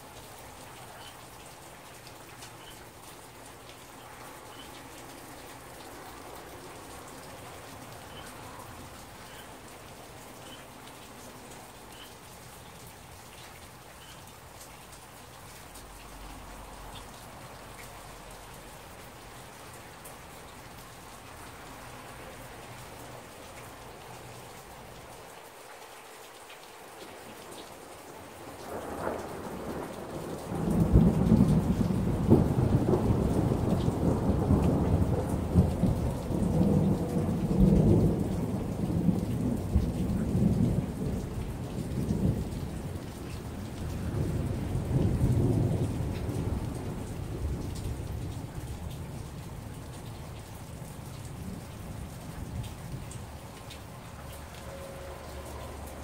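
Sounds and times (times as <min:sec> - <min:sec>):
heavy rain falling: 0:00.0 - 0:56.0
rumbling thunder: 0:28.7 - 0:49.2.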